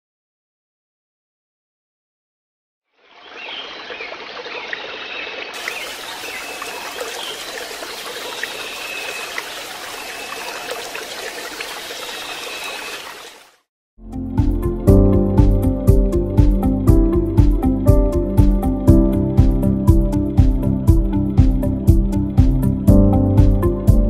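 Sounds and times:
running water: 3.0 - 13.7.

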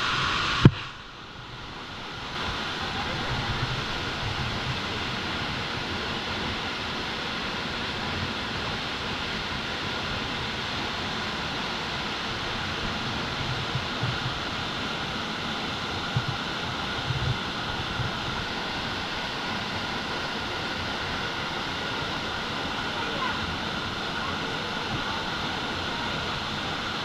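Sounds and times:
waterfall rushing: 0.0 - 27.0.

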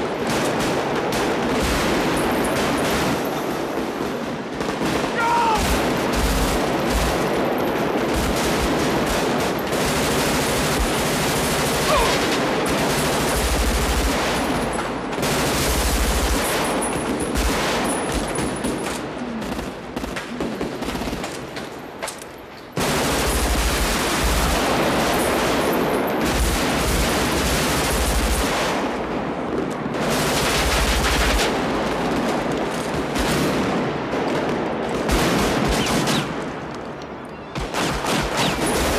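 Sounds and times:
automatic gunfire: 4.1 - 21.5, 30.0 - 36.5, 37.6 - 38.9.

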